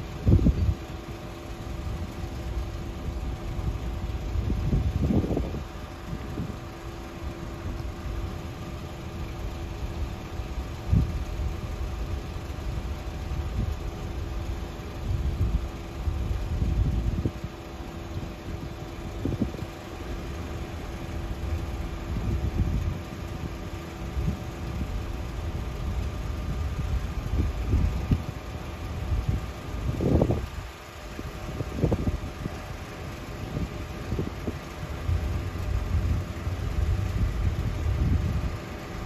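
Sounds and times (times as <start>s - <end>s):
wind buffeting microphone: 2.5s - 6.8s, 20.6s - 39.0s.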